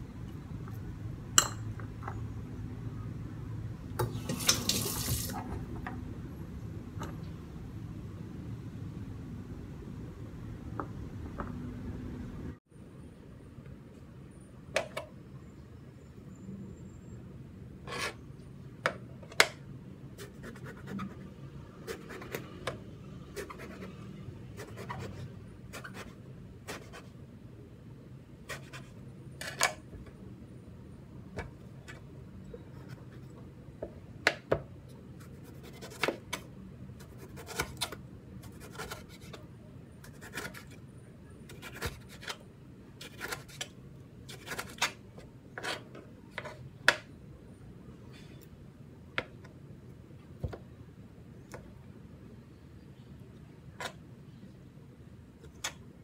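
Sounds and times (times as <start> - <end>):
faint knife scraping: 40.0 - 40.8, 44.3 - 46.6.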